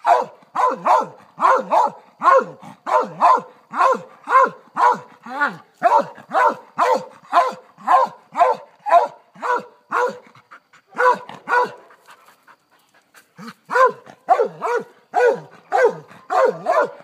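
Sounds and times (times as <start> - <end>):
dog barking: 0.0 - 5.2, 5.8 - 10.3, 10.9 - 11.9, 13.7 - 17.0.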